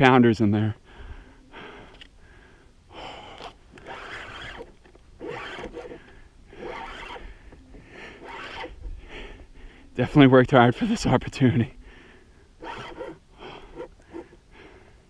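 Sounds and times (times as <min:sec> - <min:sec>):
man breathing hard: 0:00.8 - 0:03.6, 0:06.0 - 0:08.2, 0:08.8 - 0:10.0, 0:11.8 - 0:12.6, 0:13.3 - 0:15.0.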